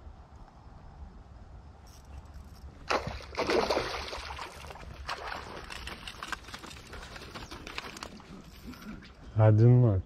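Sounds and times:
fish splashing in water: 2.8 - 8.2.

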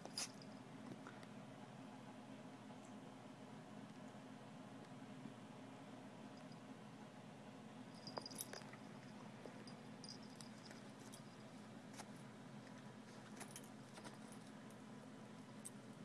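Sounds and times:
room hum: 0.0 - 16.0
collar tags jingling: 8.0 - 11.5.

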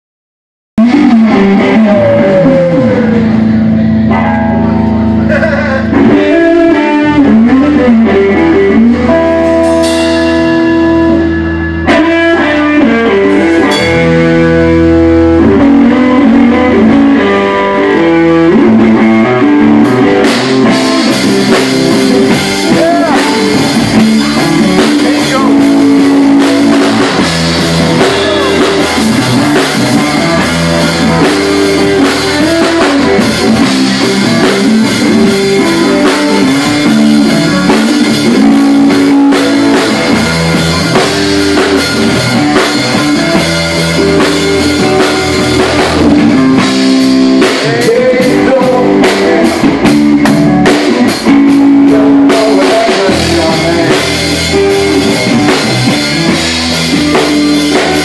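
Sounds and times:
electric guitars: 0.8 - 58.0
live rock band playing: 0.8 - 58.0
drum kit hits: 9.2 - 14.8, 18.6 - 58.0.

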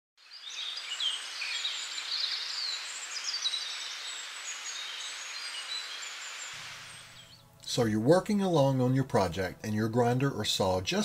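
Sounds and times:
small birds chirping: 0.2 - 7.7
steady outdoor hiss: 0.2 - 11.0.

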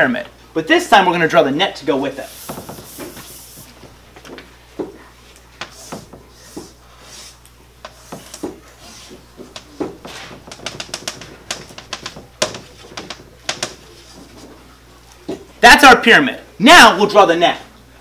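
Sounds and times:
chalk squeaks: 2.1 - 3.7, 5.6 - 14.4
chalk strokes on a chalkboard: 2.1 - 3.8, 5.6 - 14.5.

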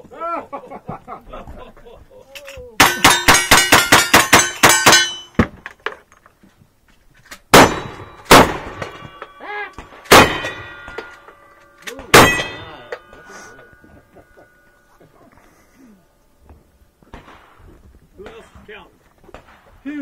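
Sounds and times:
steel targets ringing: 2.8 - 5.4, 7.6 - 14.9
gunshots: 7.5 - 9.2, 9.8 - 11.0, 12.0 - 13.0.

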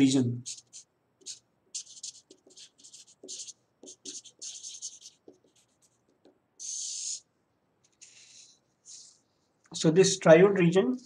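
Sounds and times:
marker scratching on paper: 0.4 - 7.2, 7.8 - 9.4.

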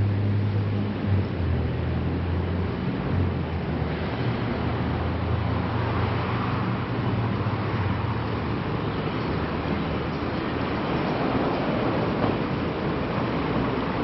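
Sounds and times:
traffic on busy city road: 0.0 - 14.0.

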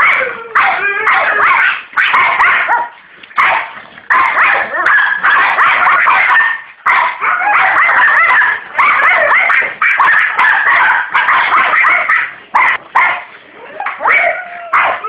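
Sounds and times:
dog yipping and whining: 0.0 - 3.5, 4.1 - 15.0.

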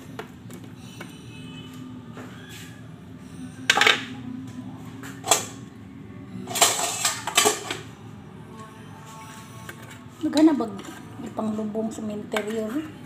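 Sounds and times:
metal utensils and dishes clattering: 6.5 - 7.9.

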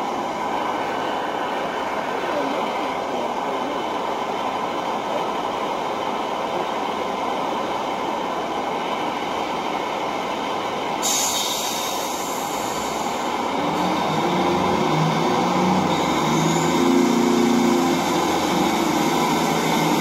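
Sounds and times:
model train rumbling: 0.0 - 20.0
sharp high hiss: 11.0 - 13.3.

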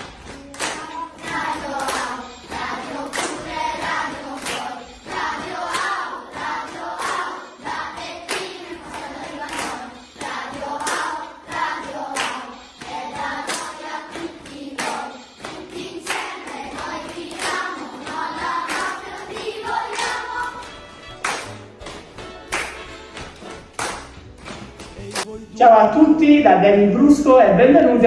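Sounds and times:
handclaps: 0.0 - 25.3
choir singing: 0.7 - 20.8.

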